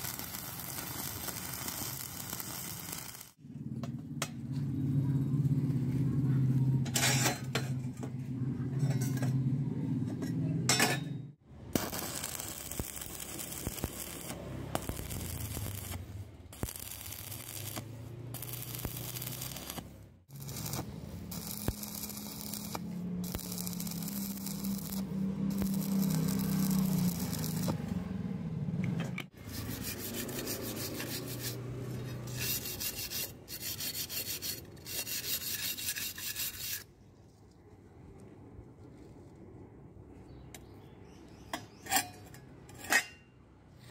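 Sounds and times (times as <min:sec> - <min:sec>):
welding arc crackling: 0:00.0 - 0:03.4, 0:11.6 - 0:28.1
wire brush scrubbing metal: 0:16.6 - 0:27.9, 0:29.4 - 0:36.9.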